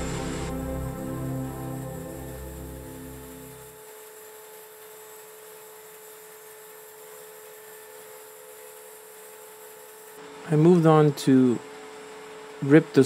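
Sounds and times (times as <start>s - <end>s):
background music: 0.0s - 3.8s
faint steady hum: 0.0s - 3.8s.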